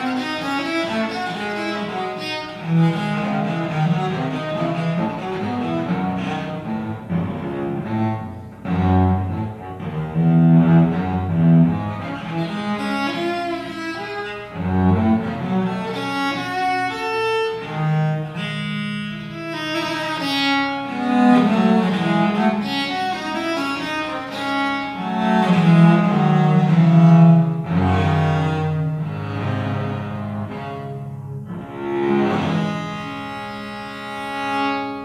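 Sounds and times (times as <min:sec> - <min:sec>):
viols playing fast baroque music: 0:00.0 - 0:18.3.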